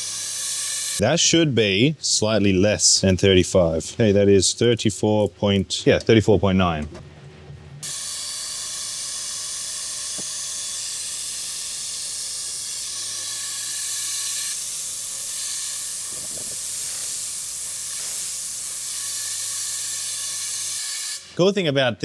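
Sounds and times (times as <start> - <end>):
compressed air hissing: 7.8 - 21.4.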